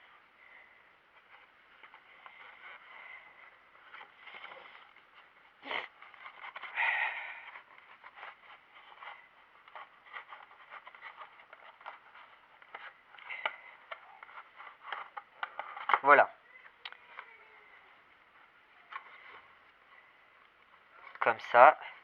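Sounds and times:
packaging crinkling and rustling: 0:03.7 - 0:16.1.

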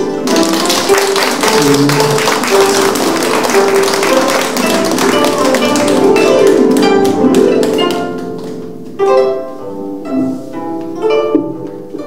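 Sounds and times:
audience applause: 0:00.0 - 0:08.6
plucked zither melody: 0:00.0 - 0:12.0.

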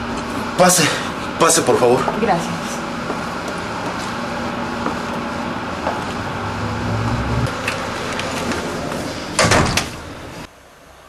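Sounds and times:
door banging shut: 0:09.4 - 0:10.0.

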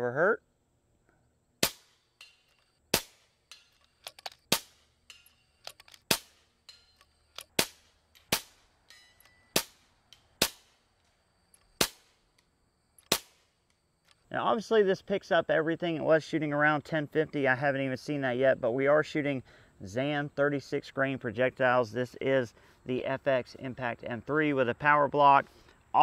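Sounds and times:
suppressed air rifle shots: 0:01.6 - 0:03.5, 0:04.4 - 0:05.1, 0:06.0 - 0:06.6, 0:07.4 - 0:08.7, 0:09.5 - 0:10.8, 0:11.7 - 0:12.4, 0:13.0 - 0:13.6.

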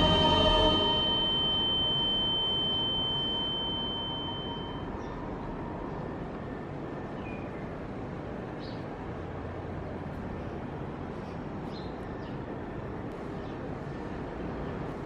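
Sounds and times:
high steady ringing tone: 0:00.0 - 0:07.5.

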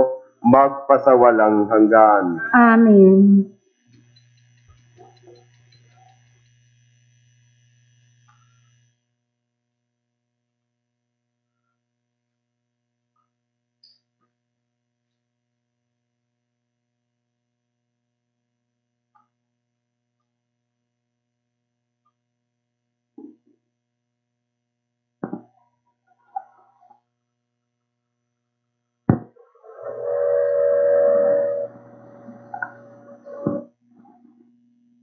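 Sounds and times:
faint electrical hum: 0:00.0 - 0:26.1.

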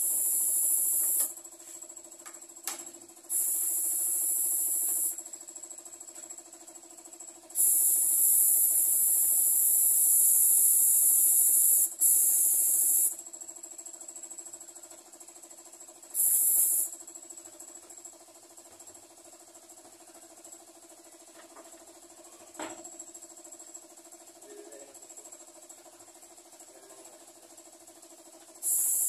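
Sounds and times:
spray gun hissing: 0:00.0 - 0:01.3, 0:03.3 - 0:05.2, 0:07.6 - 0:13.1, 0:16.2 - 0:16.9, 0:28.6 - 0:29.0
air compressor hum: 0:00.0 - 0:29.0.

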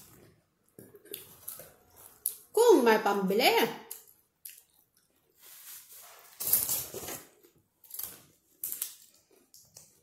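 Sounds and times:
chewing food: 0:03.9 - 0:05.4
paper wrapper rustling: 0:05.4 - 0:09.2.

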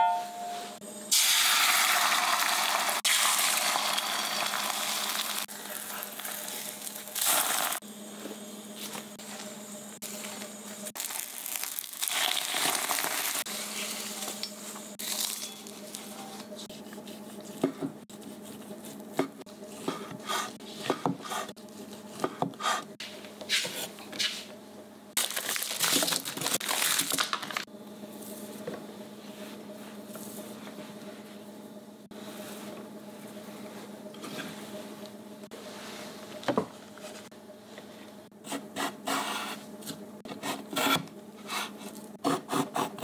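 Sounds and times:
knife chopping on a wooden board: 0:19.1 - 0:21.5, 0:22.1 - 0:22.9.

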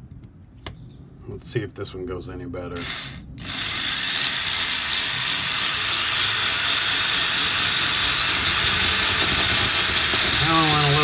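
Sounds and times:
electric drill boring into wall: 0:02.8 - 0:11.0.

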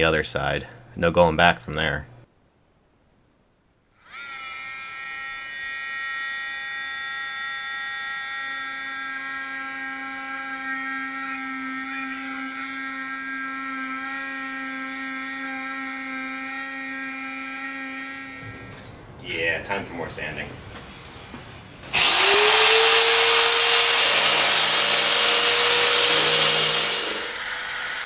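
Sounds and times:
multi-tool high whine: 0:04.0 - 0:18.9, 0:20.9 - 0:28.0.

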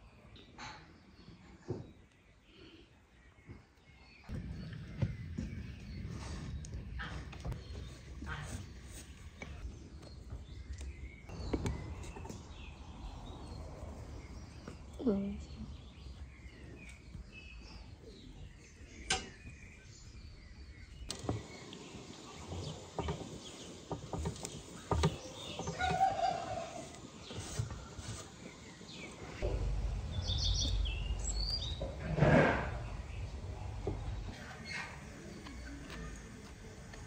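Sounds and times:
birds chirping: 0:00.0 - 0:37.0
low rumble: 0:29.4 - 0:35.1.

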